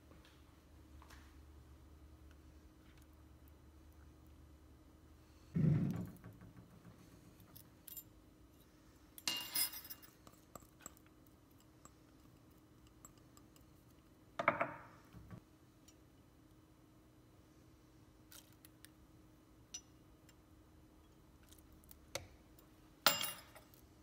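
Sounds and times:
dishes and utensils handled: 0:09.2 - 0:13.8.

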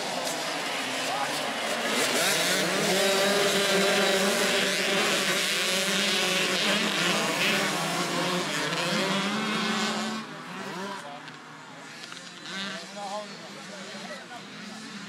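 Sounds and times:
motocross bike engines revving: 0:00.0 - 0:15.0.

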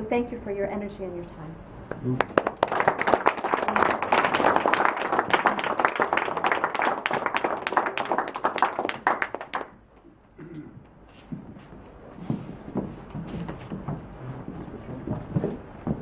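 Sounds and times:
audience applauding: 0:02.1 - 0:09.8.

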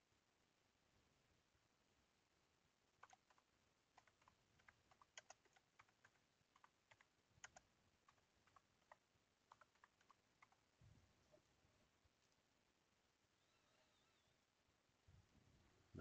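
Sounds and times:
typing on keyboard: 0:03.0 - 0:10.6.

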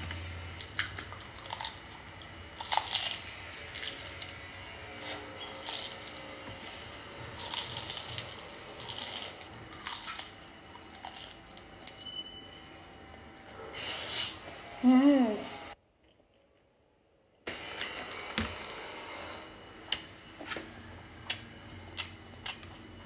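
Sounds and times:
chewing crunchy noodles: 0:00.5 - 0:12.7.

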